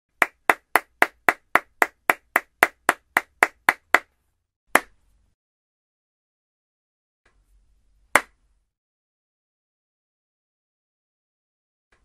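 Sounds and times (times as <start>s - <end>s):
person clapping hands: 0.2s - 4.1s.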